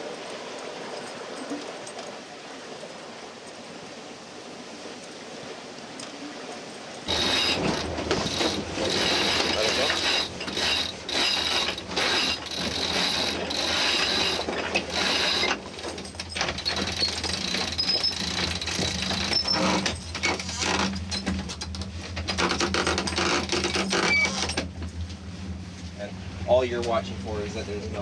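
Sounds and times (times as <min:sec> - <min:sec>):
sheet winch pawls clicking: 0:07.1 - 0:24.8.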